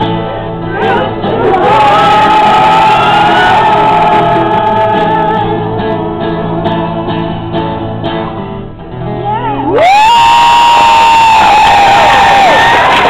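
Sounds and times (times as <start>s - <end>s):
strummed acoustic guitar: 0.0s - 9.7s
crowd cheering: 0.8s - 5.8s, 9.6s - 13.0s
group of voices singing: 0.8s - 7.0s
rising whoop: 1.3s - 5.6s, 9.7s - 13.0s.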